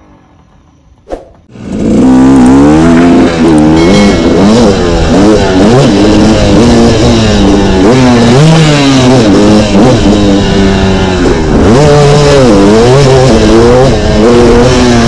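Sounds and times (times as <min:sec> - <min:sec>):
dirt bike engine accelerating: 0:00.0 - 0:15.0.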